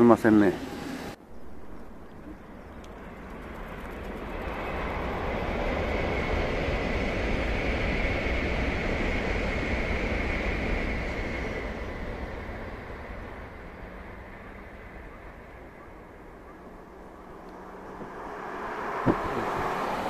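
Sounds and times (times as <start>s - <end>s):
bullet train rushing past: 0.0s - 20.0s
wind rumble on microphone: 17.6s - 20.0s.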